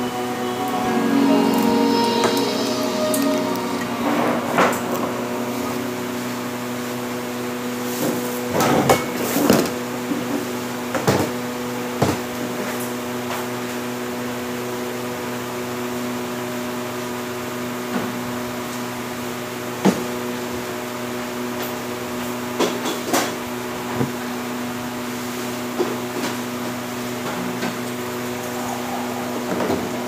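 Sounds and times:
electrical hum of appliances: 0.0s - 30.0s.

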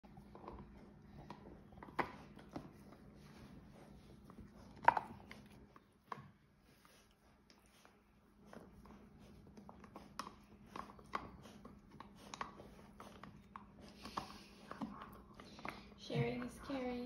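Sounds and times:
teeth clicking on a bone: 4.7s - 6.3s, 9.6s - 15.9s.

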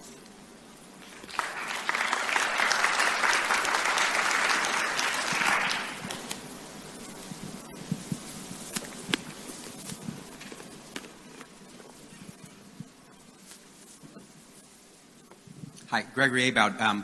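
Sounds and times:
audience applauding: 1.0s - 6.4s.

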